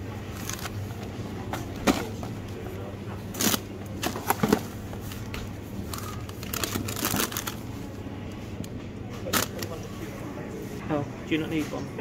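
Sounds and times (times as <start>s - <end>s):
steady low hum: 0.0s - 12.0s
plastic and cardboard packaging crinkling: 5.8s - 7.7s.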